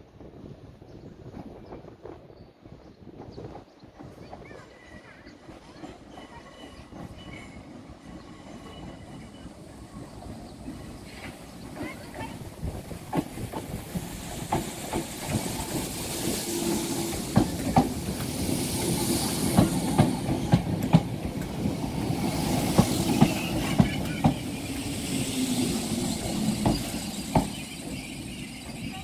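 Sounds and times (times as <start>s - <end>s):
train wheels clicking over joints: 3.5s - 28.9s
train hiss: 7.2s - 29.0s.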